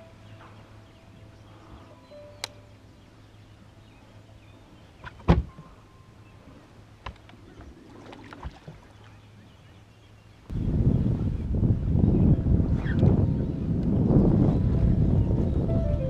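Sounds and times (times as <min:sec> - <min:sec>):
wind buffeting microphone: 0:10.5 - 0:16.0.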